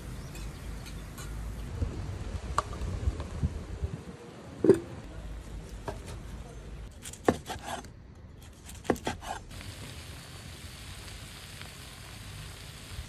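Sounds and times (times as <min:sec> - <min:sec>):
knife cutting on wooden board: 0:07.1 - 0:07.9, 0:08.5 - 0:09.4
food sizzling on griddle pan: 0:09.0 - 0:13.0.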